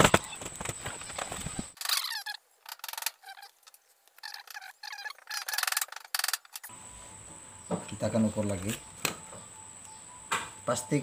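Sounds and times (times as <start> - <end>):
wires rustling and crackling: 0.0 - 6.7.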